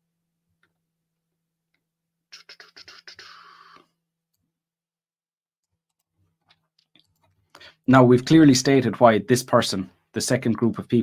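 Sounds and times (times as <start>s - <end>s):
scratchy rubbing noise: 2.4s - 3.9s.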